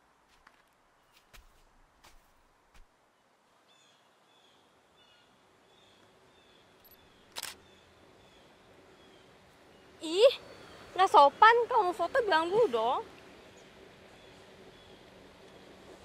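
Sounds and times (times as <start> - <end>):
soft footsteps: 0.0 - 2.9
birds chirping: 3.7 - 15.8
camera shutter click: 7.3 - 7.6.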